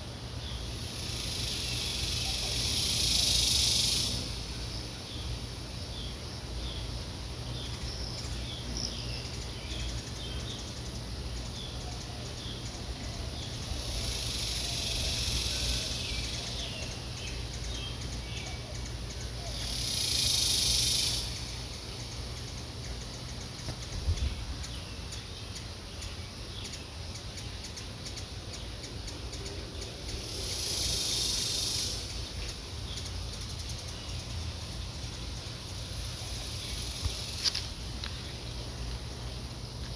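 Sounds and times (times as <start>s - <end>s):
high insect buzzes: 0.0s - 39.9s
steady low hum: 0.0s - 39.9s
birds chirping: 0.2s - 39.9s.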